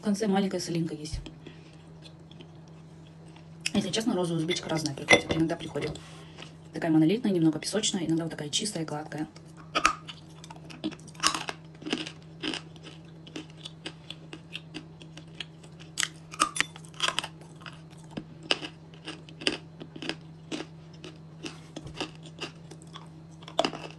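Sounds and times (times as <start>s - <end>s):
crunching and chewing clay: 1.7s - 3.7s, 9.4s - 23.9s.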